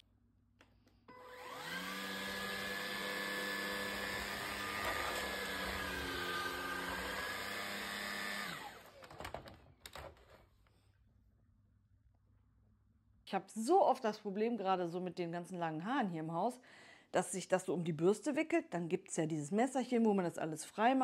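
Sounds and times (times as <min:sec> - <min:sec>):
vacuum cleaner motor whine: 0:01.1 - 0:09.2.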